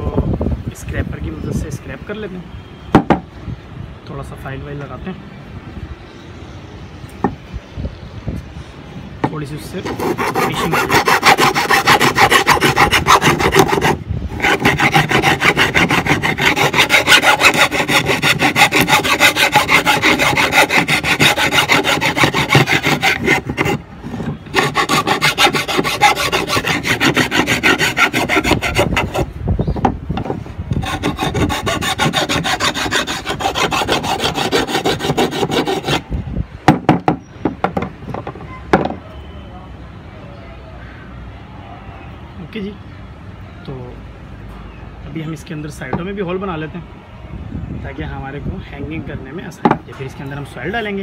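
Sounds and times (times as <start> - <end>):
metal file rasping on bamboo: 9.8 - 29.4, 30.7 - 36.1
knocks: 36.7 - 39.0.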